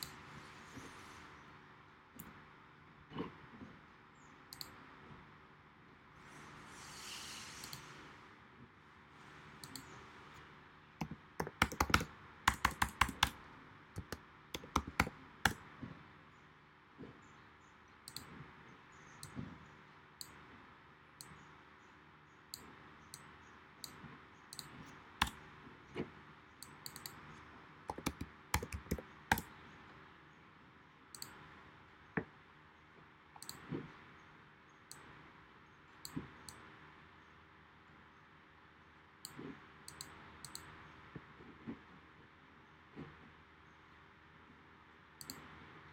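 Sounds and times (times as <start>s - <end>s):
mouse clicks: 4.5s - 4.8s, 7.6s - 7.9s, 9.6s - 10.0s, 11.0s - 13.4s, 14.0s - 15.6s, 18.1s - 18.3s, 22.5s - 25.4s, 26.6s - 27.2s, 27.9s - 29.5s, 31.1s - 31.4s, 33.4s - 33.7s, 39.2s - 40.7s, 45.2s - 45.5s
computer keyboard typing: 11.0s - 13.4s, 14.0s - 15.6s, 27.9s - 29.5s.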